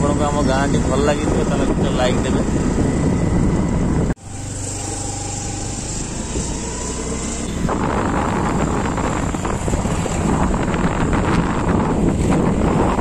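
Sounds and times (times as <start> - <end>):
wind buffeting microphone: 0.0 - 4.2, 5.8 - 13.0
road noise: 0.0 - 13.0.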